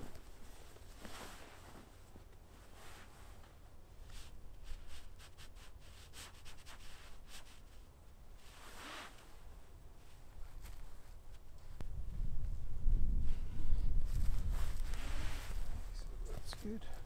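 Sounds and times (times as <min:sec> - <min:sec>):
fabric swish: 0:00.0 - 0:03.4, 0:08.4 - 0:09.4, 0:14.0 - 0:15.9
tarp fabric rustling: 0:00.0 - 0:07.8, 0:08.4 - 0:11.4, 0:14.0 - 0:16.7.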